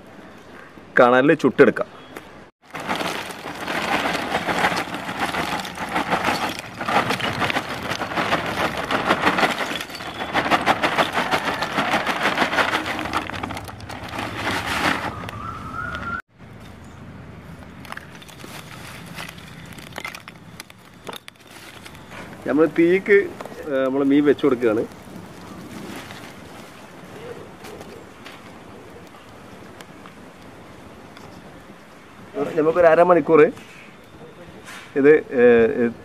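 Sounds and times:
charcoal pouring and clattering: 2.6 - 15.4, 17.8 - 27.8
scattered charcoal clicks: 2.6 - 16.1, 17.6 - 26.8.

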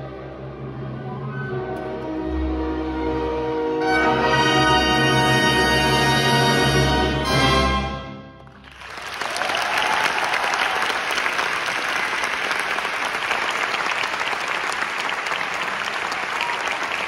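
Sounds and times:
audience applauding: 8.5 - 17.0.

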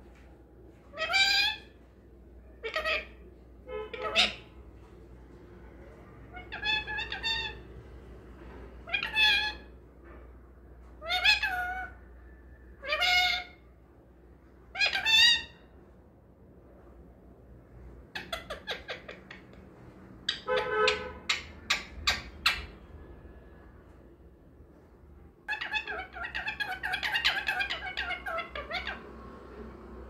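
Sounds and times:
parakeet calling: 0.9 - 1.7, 2.6 - 4.5, 6.3 - 7.7, 8.8 - 9.7, 11.0 - 12.0, 12.8 - 13.6, 14.7 - 15.7, 18.1 - 19.6, 20.2 - 22.8, 25.5 - 29.1.

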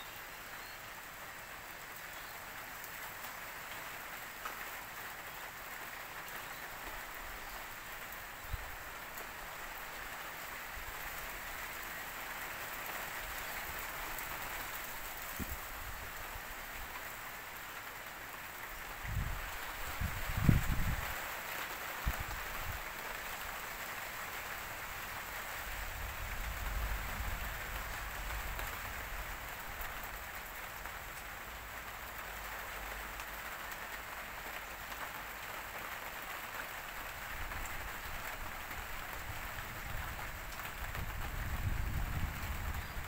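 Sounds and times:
steady rain falling: 0.0 - 43.0
wind rumbling on microphone: 19.0 - 21.2, 39.2 - 43.0.

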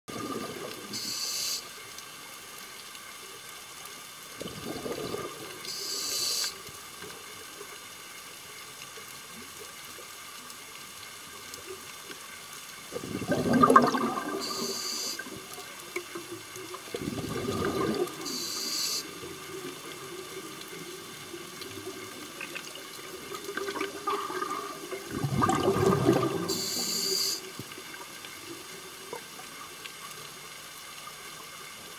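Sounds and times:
rush of bubbles underwater: 0.1 - 1.1, 4.3 - 6.1, 12.9 - 29.4
faint steady hum: 0.1 - 31.9
regulator inhale hiss: 0.9 - 1.8, 5.6 - 6.7, 14.4 - 15.4, 18.2 - 19.2, 26.4 - 27.6.

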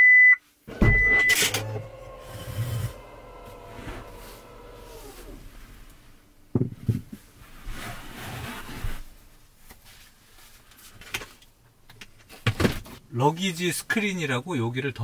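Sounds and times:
gear rubbing and shuffling: 0.7 - 6.3.

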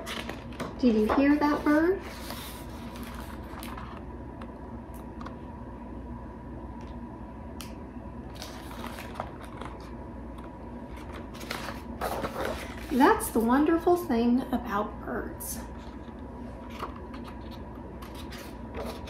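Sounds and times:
book pages rustling and clicking: 1.6 - 4.0, 8.4 - 10.0, 11.0 - 13.0, 15.8 - 19.0.

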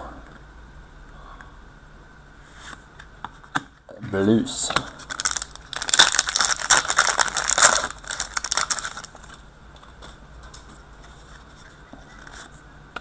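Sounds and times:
handling of cards: 3.3 - 12.5
foil wrapper crinkling: 4.9 - 9.4.

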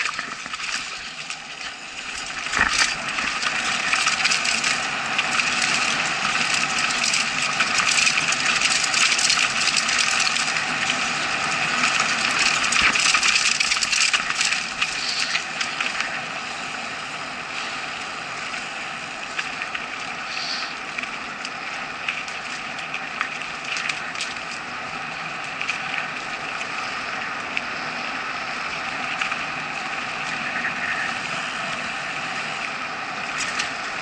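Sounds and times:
bike tyre noise on dirt: 0.0 - 34.0
bike rattling clicks and knocks: 2.1 - 16.1.

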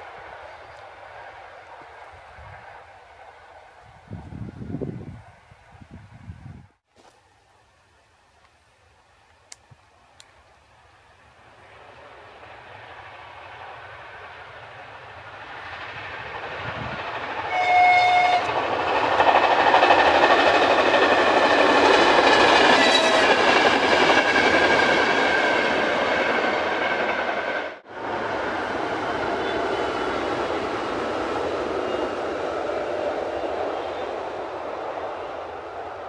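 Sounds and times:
train wheels rumbling on rails: 11.0 - 36.0
two-tone train horn blast: 17.5 - 18.6, 22.7 - 23.4.

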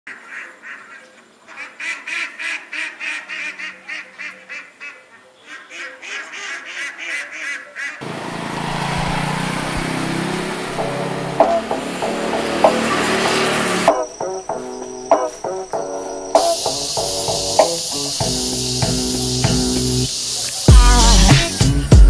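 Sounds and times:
ducks quacking: 0.1 - 18.0
background music: 9.9 - 22.0.

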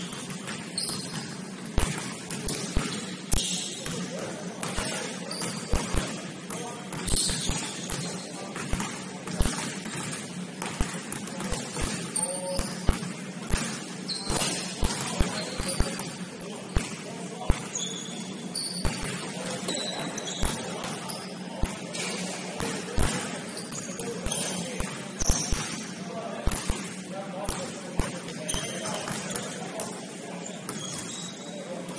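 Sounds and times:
basketball bouncing: 0.0 - 4.0, 4.6 - 16.2, 18.8 - 19.4, 22.6 - 25.8, 26.5 - 26.9
sneakers squeaking: 0.0 - 31.9.

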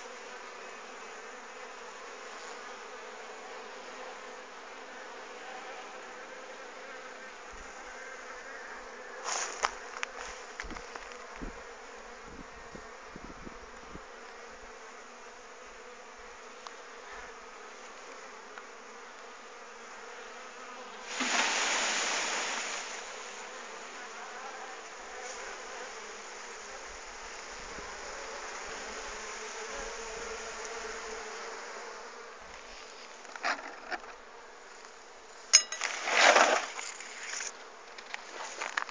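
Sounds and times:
bee swarm buzzing: 0.0 - 38.9.

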